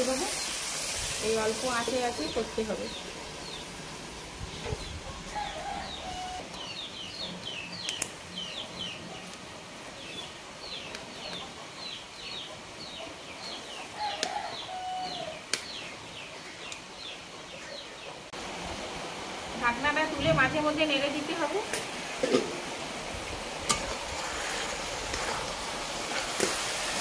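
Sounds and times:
small birds chirping: 0.0 - 3.8, 4.4 - 18.3.

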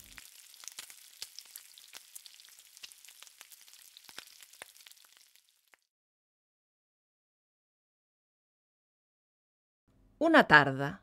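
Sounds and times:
food sizzling in frying: 0.0 - 5.9.

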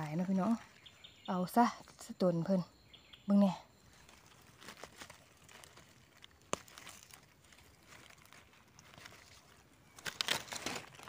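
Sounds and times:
dry leaves rustling: 3.8 - 11.0.

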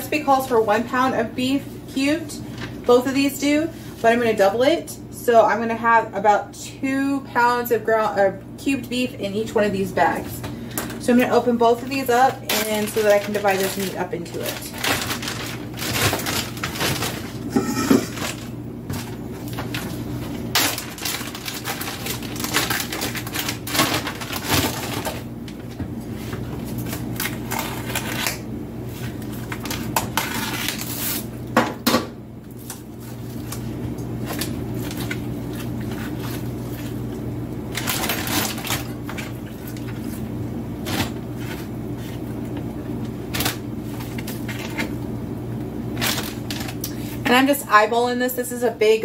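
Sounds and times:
steady low hum: 0.0 - 49.0
plastic bags crinkling: 12.2 - 25.8, 37.7 - 42.3, 45.9 - 47.0.

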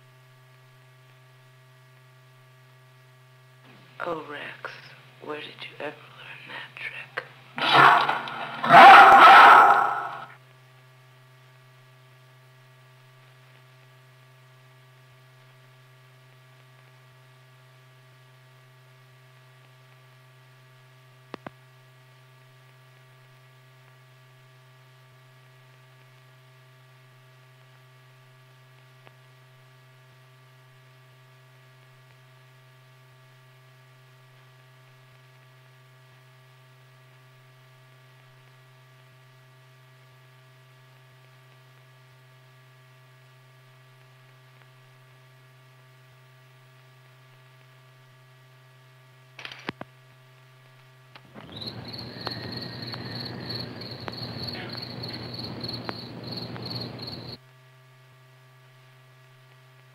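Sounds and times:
low electrical hum: 0.0 - 59.9
higher hum tones: 7.6 - 10.3, 51.4 - 57.4.

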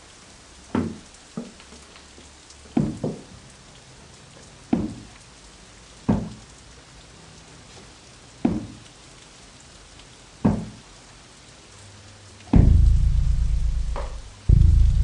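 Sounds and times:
heavy booming thuds: 12.5 - 15.0.

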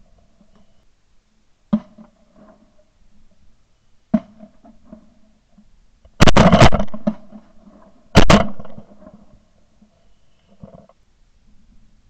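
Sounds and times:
shotgun shots: 6.2 - 7.3, 8.2 - 8.9.

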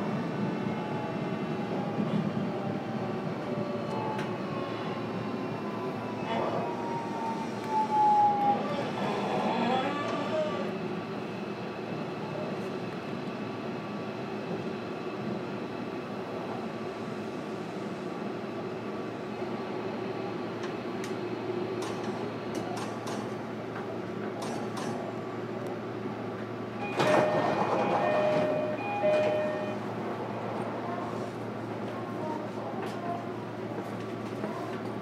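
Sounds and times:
train interior noise: 0.0 - 35.0
short repeated beeps: 26.8 - 29.8.

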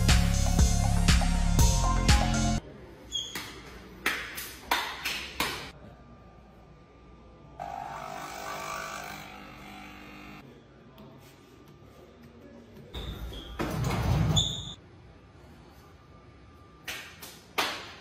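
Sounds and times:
coffee machine pump buzzing: 7.6 - 10.4.

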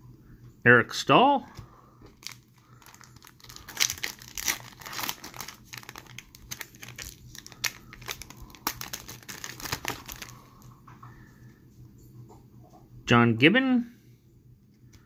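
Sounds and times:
foil wrapper tearing and crinkling: 2.2 - 10.5.

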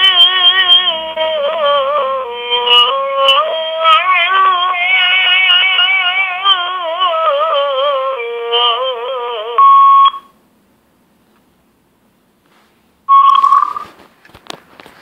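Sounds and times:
person singing with vibrato: 0.0 - 9.8
electronic beep: 9.6 - 10.3, 13.1 - 13.9.

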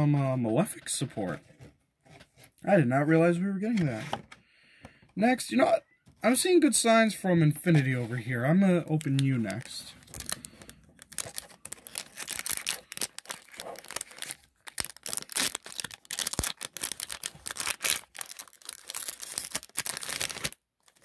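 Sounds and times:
foil wrapper tearing and crinkling: 8.9 - 21.0.

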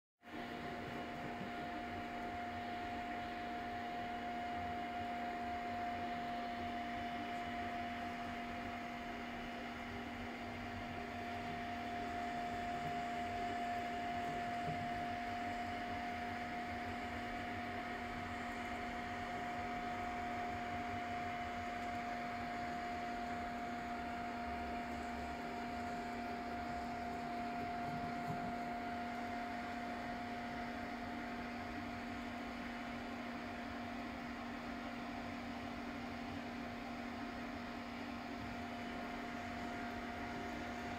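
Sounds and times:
cooling fans whirring: 0.2 - 40.9
constant hum: 0.3 - 40.9.

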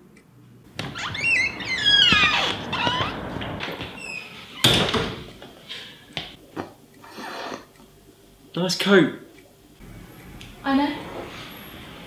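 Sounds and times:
door hinge creaking: 0.8 - 5.2
door shutting with a thud: 4.6 - 5.4.

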